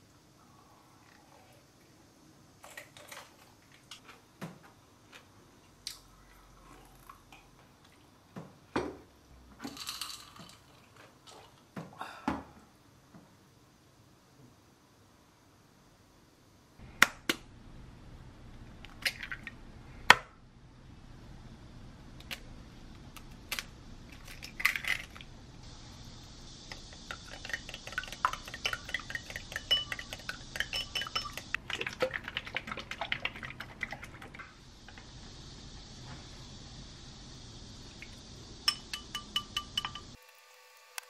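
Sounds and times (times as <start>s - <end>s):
utensil beating eggs in a bowl: 26.6s - 35.1s
dishes clinking: 28.5s - 31.5s, 38.7s - 40.2s.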